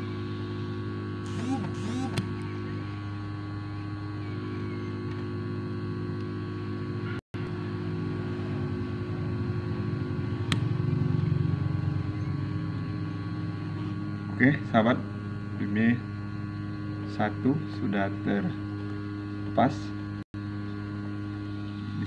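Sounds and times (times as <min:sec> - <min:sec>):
hot air blower humming: 0:00.0 - 0:22.0
sharp click: 0:10.5 - 0:10.7.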